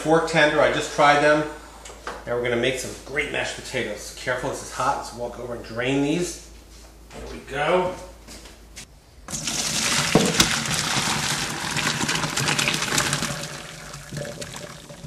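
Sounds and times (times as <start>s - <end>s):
water pouring through a colander: 9.3s - 15.0s.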